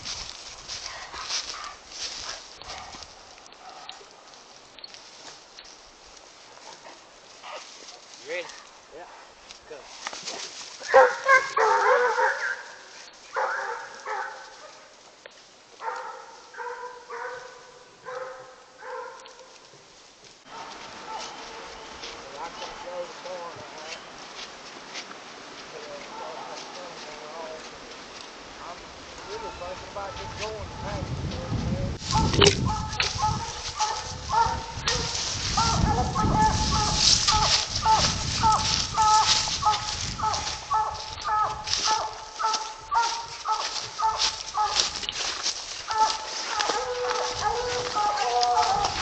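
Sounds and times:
footsteps pushing through brush: 0.0 - 49.0
hounds barking: 0.8 - 4.4, 6.6 - 7.8, 10.8 - 15.0, 15.8 - 19.6, 20.4 - 22.9, 32.1 - 49.0.

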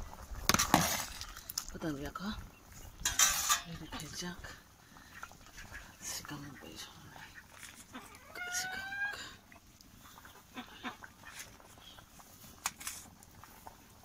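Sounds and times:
drawn-out animal call: 5.2 - 9.4.

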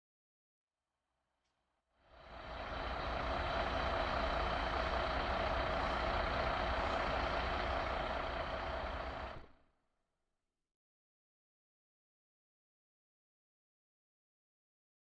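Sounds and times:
fire engine humming with whine: 2.0 - 9.5.

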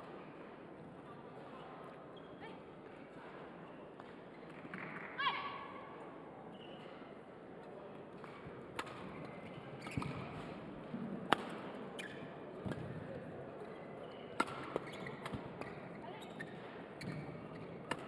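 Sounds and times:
racket hitting shuttlecock: 8.2 - 10.5, 11.3 - 12.9, 14.4 - 15.9.

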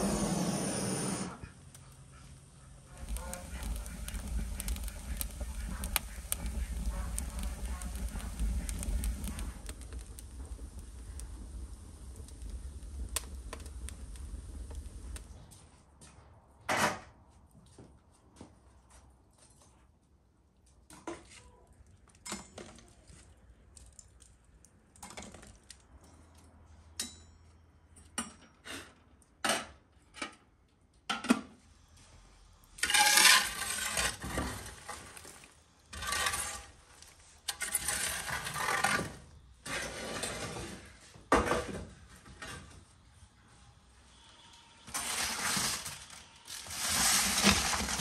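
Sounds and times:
tool raking embers on brick: 0.0 - 15.4, 32.8 - 42.8, 44.9 - 48.0.

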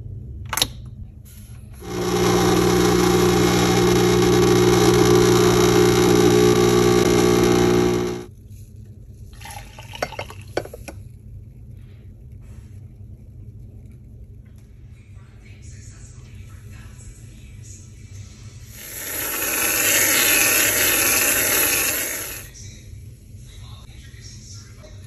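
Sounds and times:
espresso machine pump humming: 1.8 - 8.3, 18.7 - 22.5.

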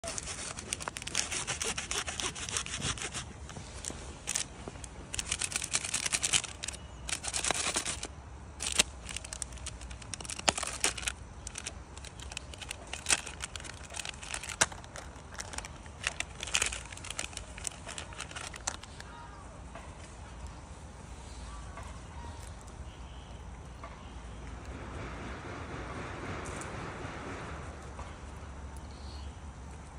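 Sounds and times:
plastic tearing: 0.0 - 19.1
plastic wrapper crinkling: 0.0 - 19.2.

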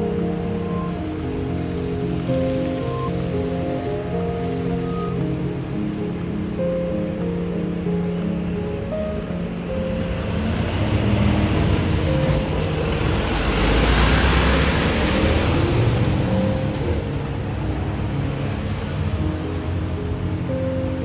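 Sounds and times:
car passing by: 9.8 - 21.0.

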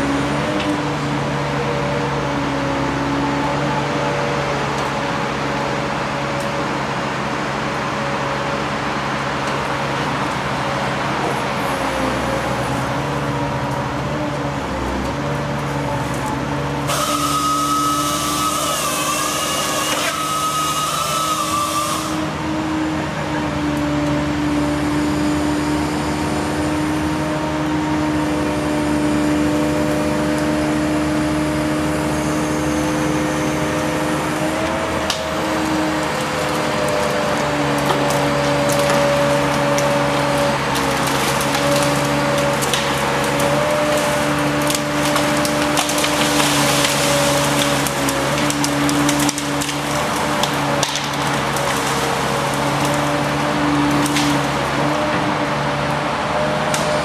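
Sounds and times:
crane machine hum: 0.0 - 57.0
saw head whining: 16.9 - 22.6
wood cracking through branches: 35.0 - 55.2.

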